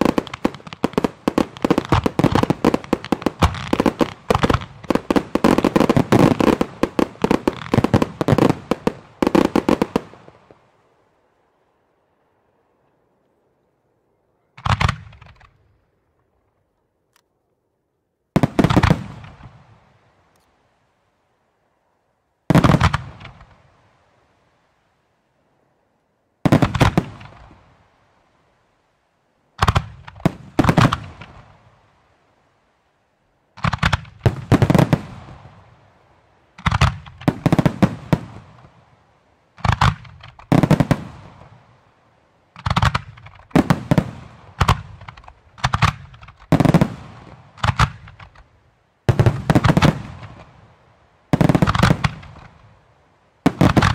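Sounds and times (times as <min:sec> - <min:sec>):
fireworks bursts banging: 0:00.0 - 0:10.7, 0:14.6 - 0:15.7, 0:18.3 - 0:19.9, 0:22.5 - 0:23.6, 0:26.4 - 0:27.8, 0:29.6 - 0:31.7, 0:33.6 - 0:41.9, 0:42.5 - 0:52.8, 0:53.4 - 0:53.9.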